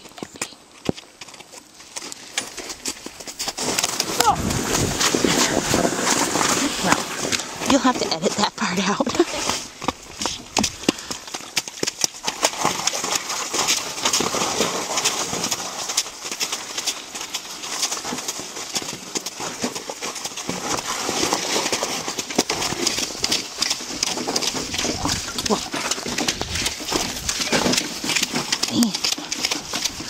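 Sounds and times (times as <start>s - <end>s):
hooves clip-clopping on snow: 0.0s - 30.0s
cart and harness rattling: 1.3s - 30.0s.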